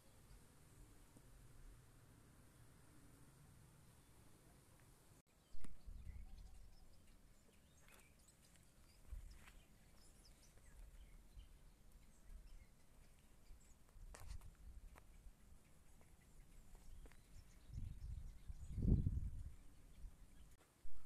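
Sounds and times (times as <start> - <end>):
faint bird chirps: 5.3 - 13.9
wind rumble on microphone: 5.6 - 6.9, 16.8 - 21.0.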